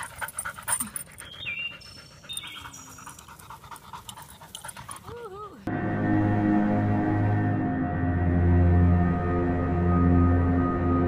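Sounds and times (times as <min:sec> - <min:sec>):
dog panting: 0:00.0 - 0:05.7.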